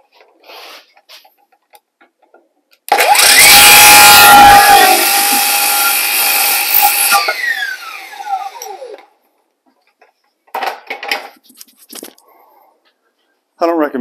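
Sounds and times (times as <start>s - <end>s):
saw blade spinning down: 2.9s - 9.0s
circular saw cutting wood: 2.9s - 9.1s.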